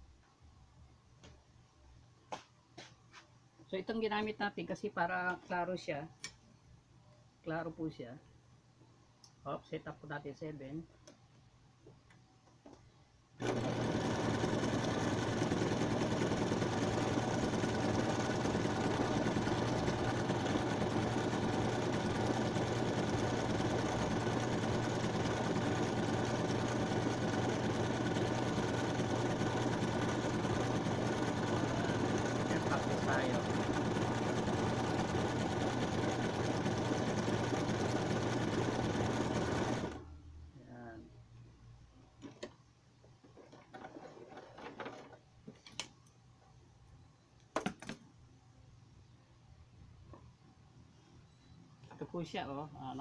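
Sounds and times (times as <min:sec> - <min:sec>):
electric sewing machine running: 0:13.4 - 0:40.1.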